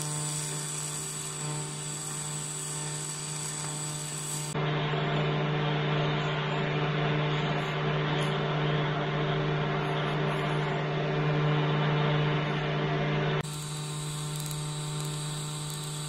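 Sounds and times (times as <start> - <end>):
welding arc buzzing: 0.0 - 4.6, 13.4 - 16.0
steady low hum: 0.0 - 16.0.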